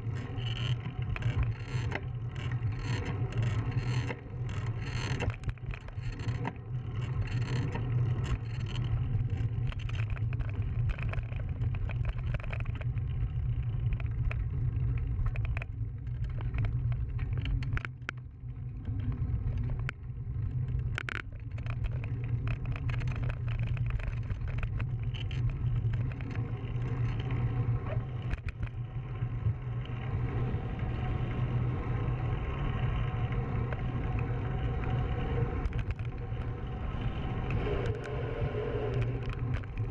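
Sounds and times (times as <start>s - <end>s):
tyres rolling on asphalt: 21.5s - 39.9s
wind on microphone: 27.1s - 39.9s.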